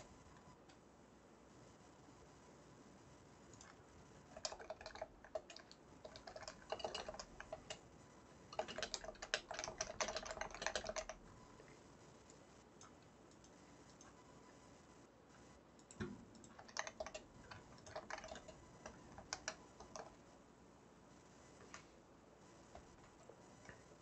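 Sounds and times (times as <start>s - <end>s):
typing on computer keyboard: 3.5s - 7.8s, 8.5s - 11.2s, 15.8s - 20.2s.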